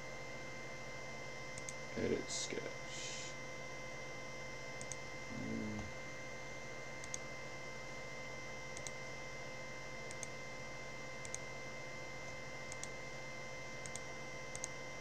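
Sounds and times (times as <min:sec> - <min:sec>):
steady electrical hum: 0:00.0 - 0:15.0.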